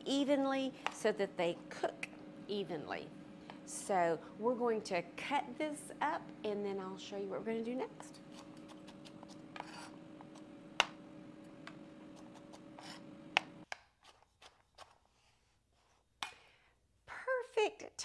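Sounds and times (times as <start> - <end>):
steady low hum: 0.0 - 13.7
knife slicing on cutting board: 8.2 - 10.4.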